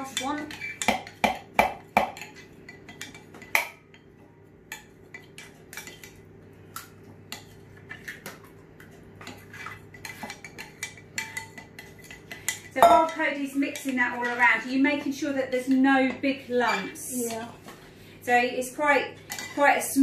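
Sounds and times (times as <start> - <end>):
utensil scraping mixing bowl: 7.3 - 17.9.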